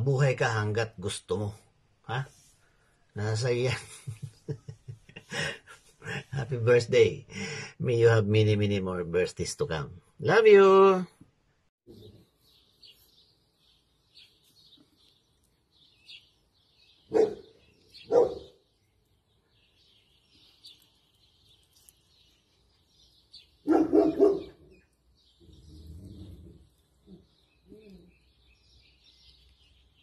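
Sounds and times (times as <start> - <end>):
faint bird chirps: 11.9 - 30.0
dog barking: 17.1 - 18.6, 23.6 - 24.6.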